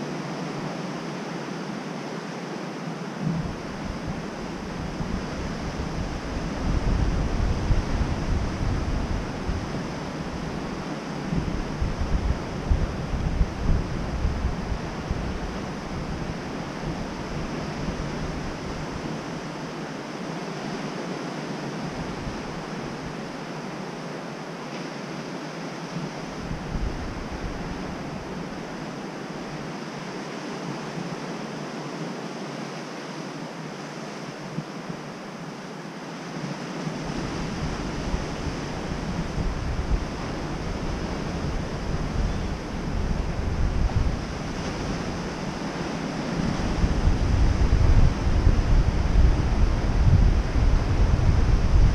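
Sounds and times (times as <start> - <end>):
ocean surf breaking on beach: 0.0 - 51.9
wind buffeting microphone: 3.2 - 19.6, 25.9 - 29.7, 36.4 - 51.9.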